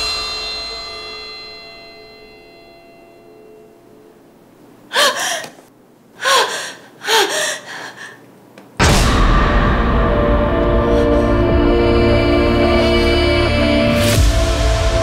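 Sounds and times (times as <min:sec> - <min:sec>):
woman gasping: 0:04.9 - 0:08.3.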